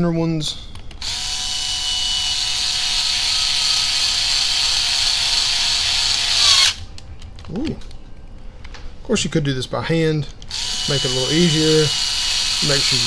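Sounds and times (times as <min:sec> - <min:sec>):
electric screwdriver whine: 0:01.0 - 0:06.8, 0:10.5 - 0:13.0.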